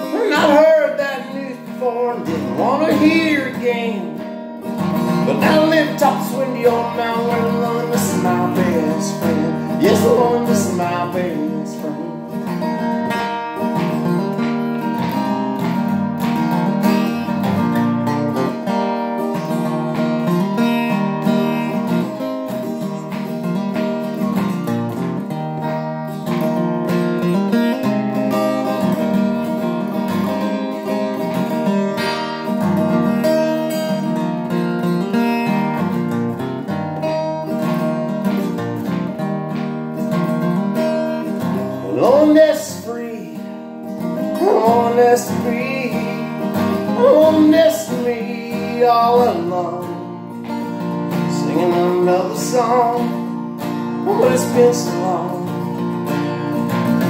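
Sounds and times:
acoustic guitar strumming: 0.0s - 57.0s.

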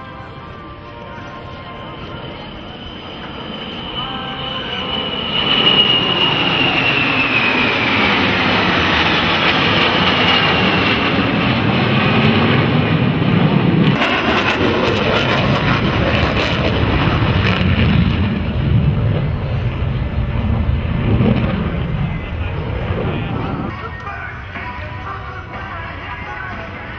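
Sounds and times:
fighter jets passing overhead: 0.0s - 26.9s
single jet banking pass: 2.2s - 23.7s.

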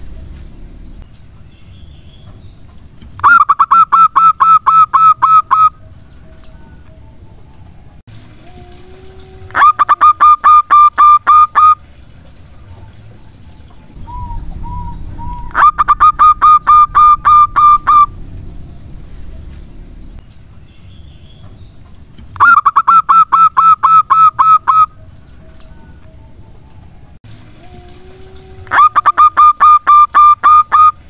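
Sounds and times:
dove rapid staccato cooing: 3.2s - 5.8s, 9.5s - 11.8s, 14.0s - 18.2s, 22.4s - 24.9s, 28.7s - 31.0s.

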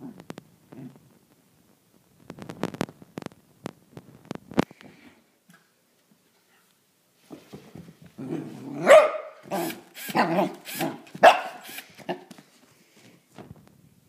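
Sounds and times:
puppy barking: 8.8s - 10.6s, 11.2s - 12.2s.

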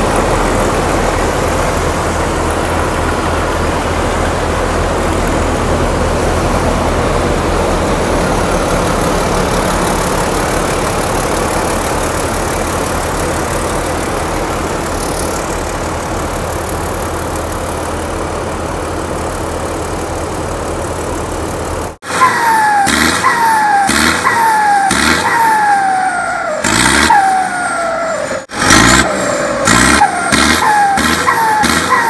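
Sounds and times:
diesel engine idling: 0.0s - 32.0s.

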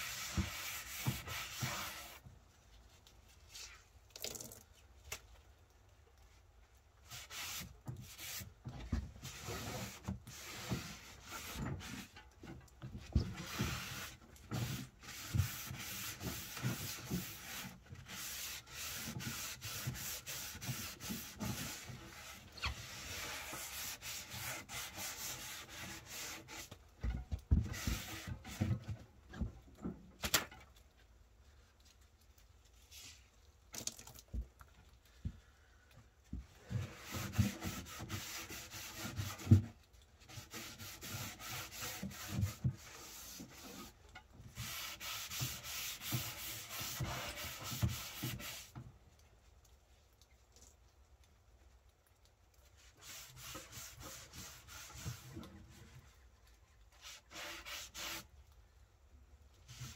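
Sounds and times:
cloth rag rubbing on wood: 0.0s - 2.2s, 13.2s - 26.7s, 36.8s - 39.6s, 40.2s - 44.0s, 44.6s - 48.7s, 52.8s - 55.9s, 57.0s - 58.3s.

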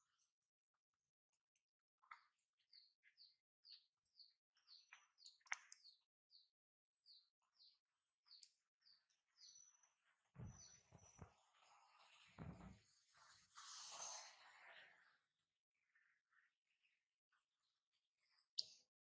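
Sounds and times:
small bird chirping: 2.0s - 15.3s, 17.6s - 18.9s.

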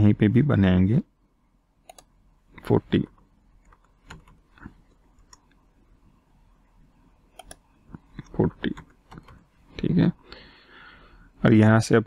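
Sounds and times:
computer mouse and keyboard clicks: 3.2s - 5.6s, 7.4s - 9.4s.

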